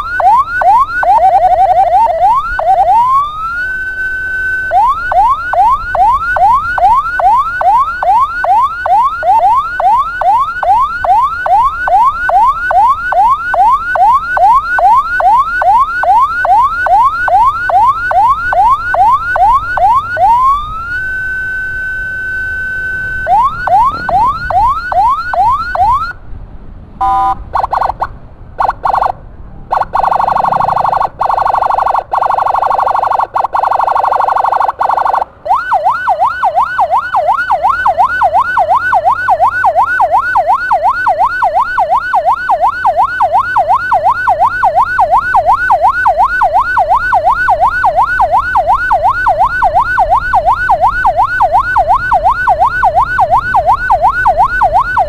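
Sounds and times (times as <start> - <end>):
siren yelping: 0.0 - 26.2, 27.0 - 55.0
harsh buzzing horn: 20.8 - 23.3.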